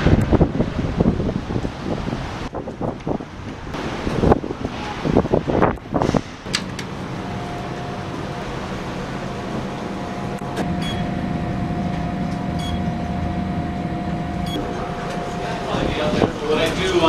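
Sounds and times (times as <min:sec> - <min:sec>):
elevator mechanical hum: 0:02.6 - 0:17.0
click with high beep: 0:12.6 - 0:12.8.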